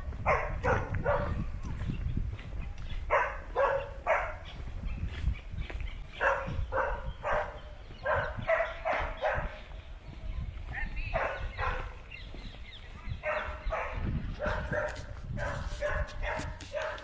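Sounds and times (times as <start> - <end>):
dog barking: 0.1 - 1.5, 3.1 - 4.6, 6.2 - 9.7, 10.8 - 12.0, 13.2 - 17.0.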